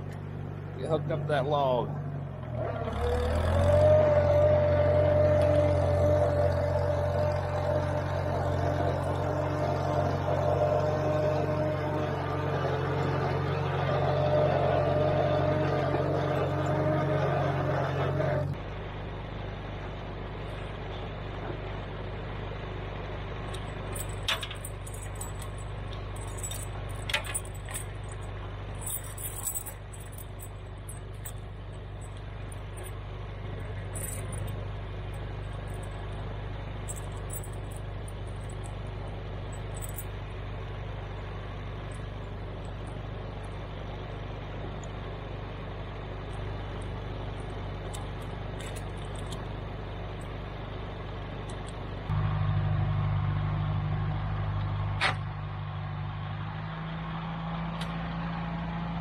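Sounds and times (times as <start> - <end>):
tractor engine idling: 0.0 - 59.0
chain clinking and rattling: 23.5 - 32.9, 33.6 - 36.2, 36.8 - 38.9, 39.5 - 40.1, 46.8 - 49.5.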